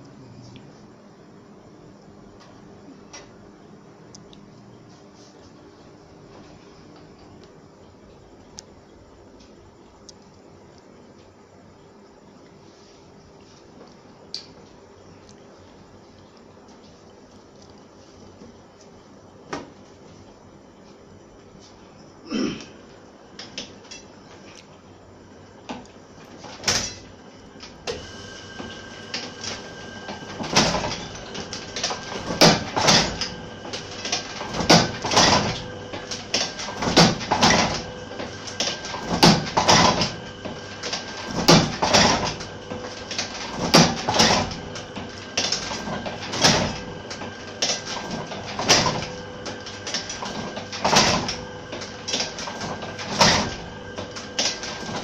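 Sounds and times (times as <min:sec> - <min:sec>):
printing press hum: 0:00.0 - 0:55.0
printing press clanking: 0:26.3 - 0:55.0.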